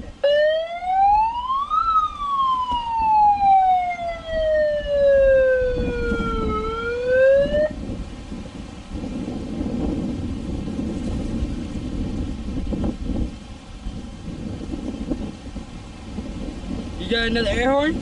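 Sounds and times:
siren wailing: 0.1s - 7.8s.

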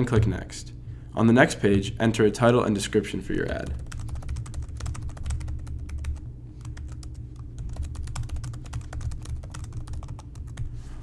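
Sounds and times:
steady low hum: 0.0s - 11.0s
rapid typing on keyboard: 3.4s - 10.7s.

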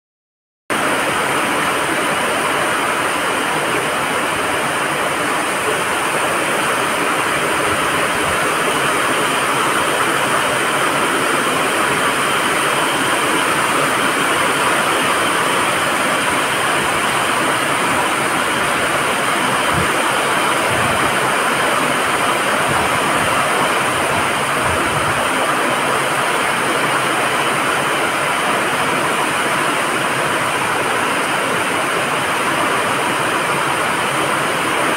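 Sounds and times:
heavy rain on roofs and pavement: 0.7s - 34.9s.

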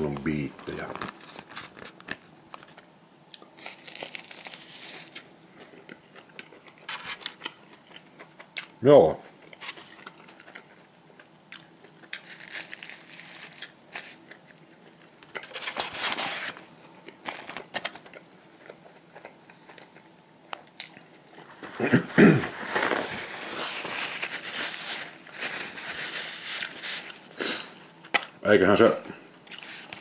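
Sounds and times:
paper wrapper rustling: 0.0s - 2.8s, 3.6s - 5.2s, 12.2s - 14.2s, 15.4s - 16.6s, 17.2s - 18.1s, 22.4s - 27.2s
person chewing food: 3.3s - 15.6s, 16.9s - 21.6s.

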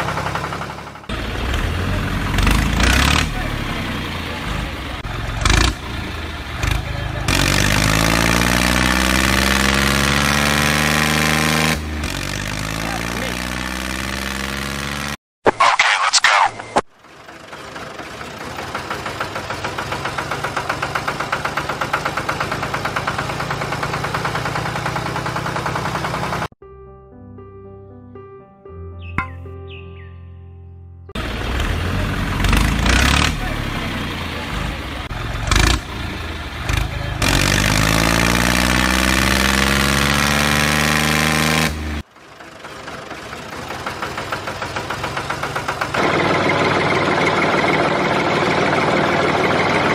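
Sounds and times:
diesel tractor engine knocking: 0.0s - 8.0s, 17.0s - 26.5s, 31.2s - 38.0s, 42.0s - 49.9s.

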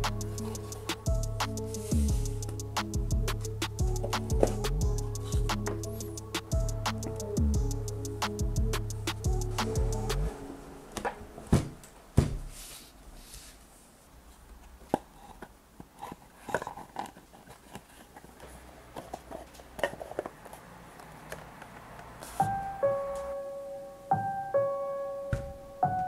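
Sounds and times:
soft handling noise: 11.0s - 22.6s.

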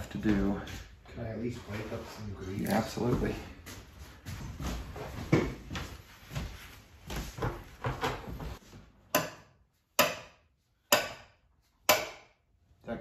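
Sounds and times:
handling and rubbing noises: 0.0s - 8.9s
hammer striking wrench: 9.1s - 12.4s.

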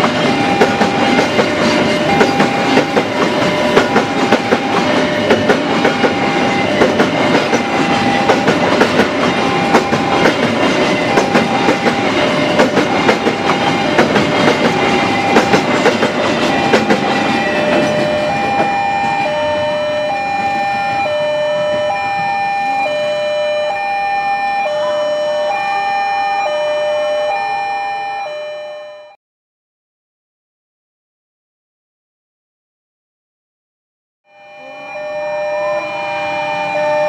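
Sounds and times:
train wheels clattering: 0.0s - 19.3s
two-tone level-crossing alarm: 0.0s - 29.2s, 34.2s - 37.0s.

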